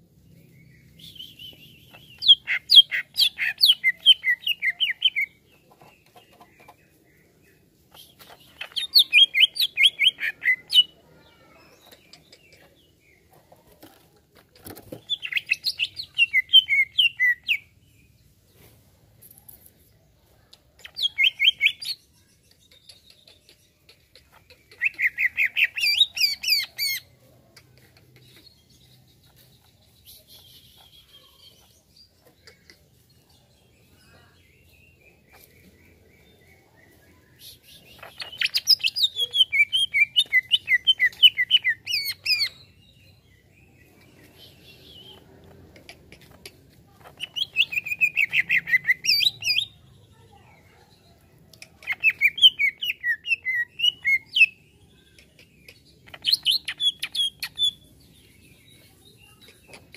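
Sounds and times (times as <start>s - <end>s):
bird singing rapid chirps: 0.2s - 11.0s, 14.7s - 17.7s, 20.8s - 27.1s, 33.8s - 46.3s, 47.1s - 50.2s, 51.8s - 59.9s.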